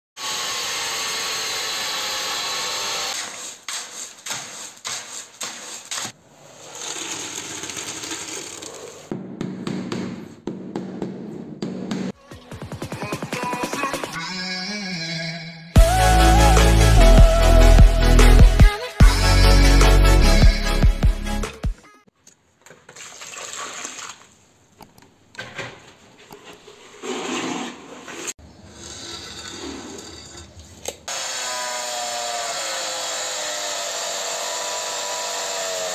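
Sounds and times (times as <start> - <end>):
angle grinder cutting tile: 0.2 - 9.1, 27.0 - 35.9
logo music: 15.8 - 21.6
knocks and scraping: 25.3 - 31.0.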